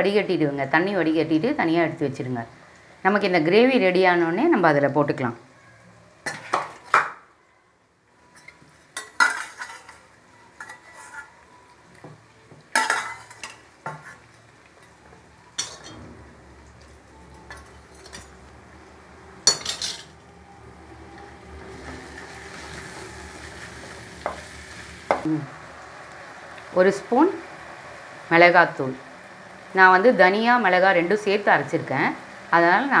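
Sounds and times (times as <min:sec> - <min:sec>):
sauce sizzling: 0:08.2 - 0:33.0
spatula scraping a pan: 0:08.3 - 0:11.4, 0:12.8 - 0:14.3.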